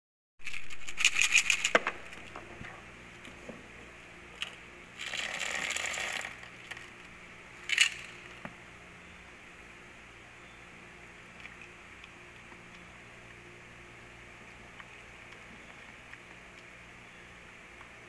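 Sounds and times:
candies rattling into a tray: 0.4s - 1.7s, 5.0s - 6.9s, 7.6s - 8.4s.

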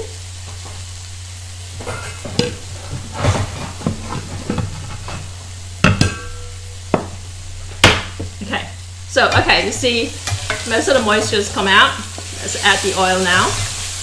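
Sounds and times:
paste sizzling in a wok: 0.0s - 14.0s
steady low hum: 0.0s - 14.0s
metal utensils clanking: 1.8s - 5.3s, 9.2s - 13.8s.

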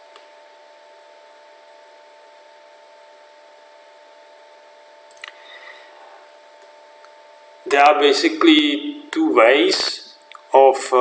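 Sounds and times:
electrical hum and hiss: 0.0s - 11.0s.

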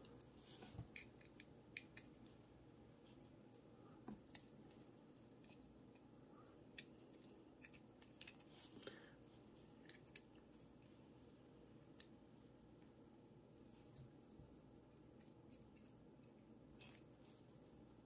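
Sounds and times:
small metallic clicks and scrapes: 6.7s - 8.6s, 9.8s - 11.0s, 14.9s - 17.2s.

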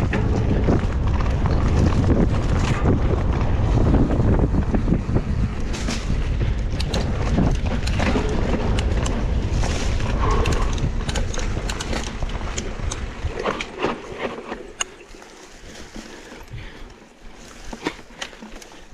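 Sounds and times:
wind buffeting microphone: 0.0s - 16.9s
bike clicks and rattles: 0.0s - 18.9s.

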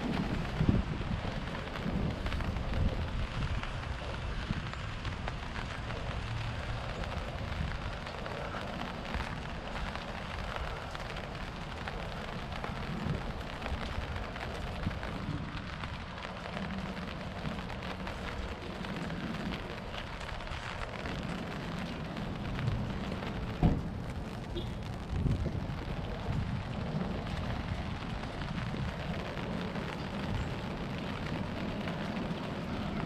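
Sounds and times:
rain on wet pavement: 0.0s - 33.0s
loud thump: 23.6s - 23.9s.

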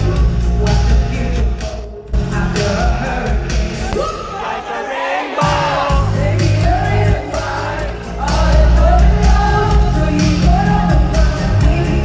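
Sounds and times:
live band playing pop: 0.0s - 12.0s
woman singing: 5.4s - 12.0s.

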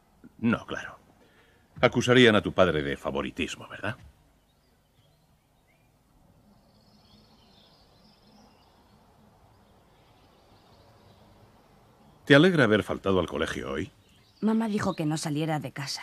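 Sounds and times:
faint bird chirps: 0.0s - 16.0s.

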